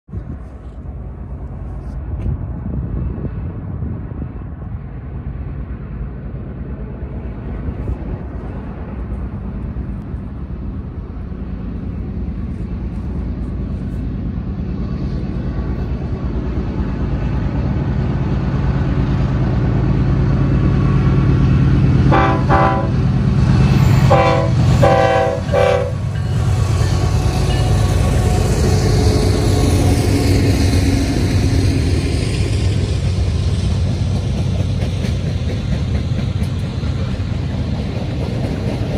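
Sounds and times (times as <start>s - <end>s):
locomotive engine rumble: 0.1s - 38.9s
train chime horn blasts: 22.1s - 23.0s, 24.0s - 28.5s.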